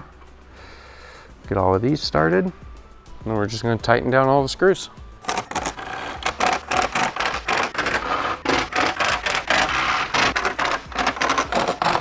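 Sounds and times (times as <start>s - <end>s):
clicks and scraping: 5.2s - 12.0s
power driver tightening screws: 5.2s - 12.0s.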